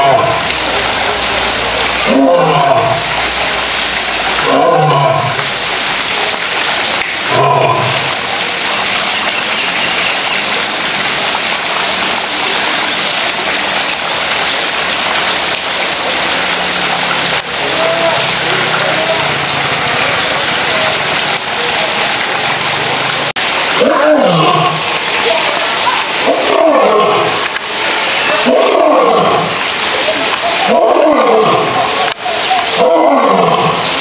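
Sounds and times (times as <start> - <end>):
lion roaring: 0.0 - 0.5, 2.0 - 3.1, 4.4 - 5.5, 7.3 - 8.0, 23.8 - 24.8, 26.2 - 27.4, 28.4 - 29.6, 30.7 - 31.8, 32.8 - 33.8.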